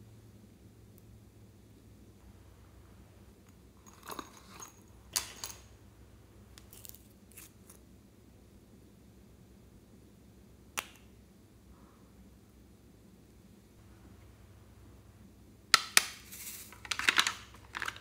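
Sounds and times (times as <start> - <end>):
plastic and glass items clicking: 16.7 - 18.0.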